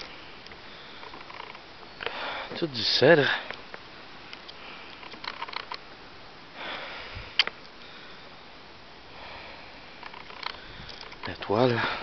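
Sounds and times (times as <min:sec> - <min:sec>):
soft breaths: 0:00.0 - 0:05.6, 0:06.5 - 0:12.0
camera handling noise: 0:04.4 - 0:05.8.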